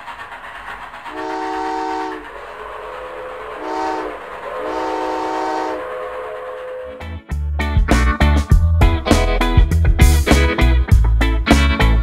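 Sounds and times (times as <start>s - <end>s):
train chord whistle blasts: 1.1s - 2.3s, 2.9s - 7.1s.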